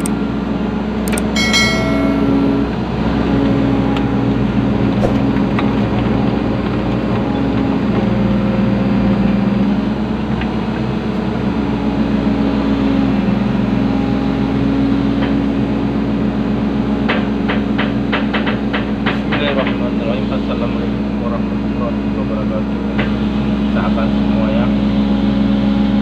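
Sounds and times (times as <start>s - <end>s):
hydraulics working: 0.0s - 0.2s
excavator diesel engine running: 0.0s - 18.2s.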